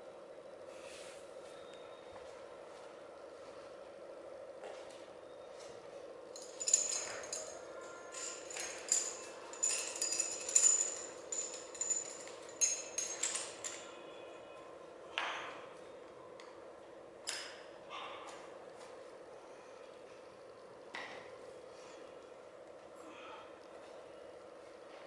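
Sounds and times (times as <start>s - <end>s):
steady low hum: 0.0s - 25.0s
weights clinking: 6.4s - 13.9s.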